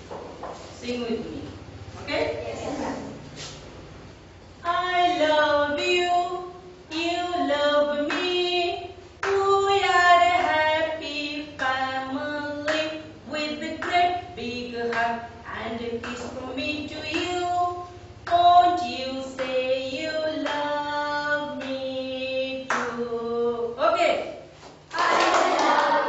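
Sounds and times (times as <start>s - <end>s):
woman singing unaccompanied: 4.6s - 23.9s.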